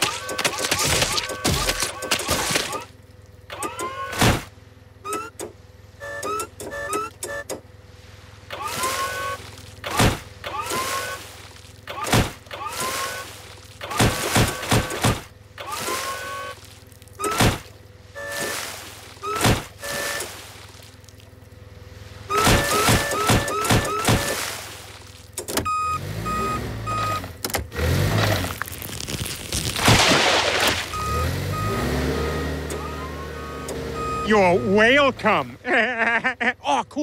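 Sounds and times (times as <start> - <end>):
forklift lift motor whining: 0.0 - 20.6, 21.2 - 29.2, 30.8 - 35.7
steady motor hum: 0.0 - 37.0
reversing beeps: 5.0 - 7.6, 22.3 - 24.4, 25.6 - 27.3, 30.9 - 35.4.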